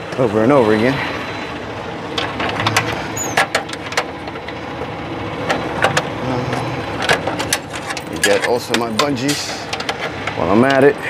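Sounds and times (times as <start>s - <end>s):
truck engine idling: 0.0s - 11.0s
sharp knocks and clanks: 2.1s - 4.6s, 5.4s - 10.9s
high squeak: 3.2s - 3.4s.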